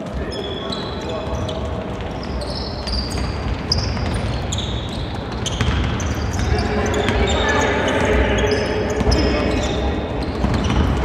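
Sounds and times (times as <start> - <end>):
sneakers squeaking: 0.0 - 11.0
basketball bouncing: 2.8 - 7.4, 10.3 - 11.0.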